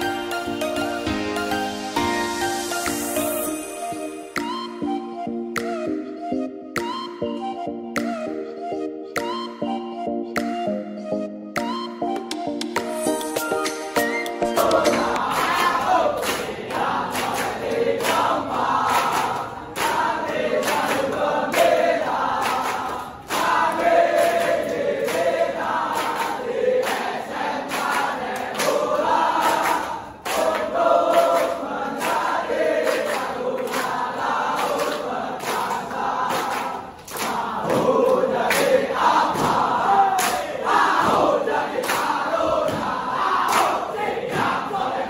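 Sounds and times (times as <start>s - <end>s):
hand claps: 4.3s - 4.8s, 5.5s - 5.9s, 6.7s - 7.2s, 9.1s - 9.6s, 10.3s - 10.7s, 11.5s - 44.8s
group chanting and singing: 14.4s - 45.0s.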